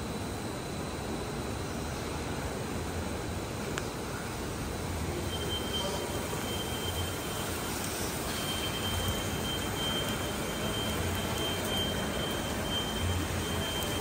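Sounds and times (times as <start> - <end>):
machine running with high whine: 4.3 - 14.0.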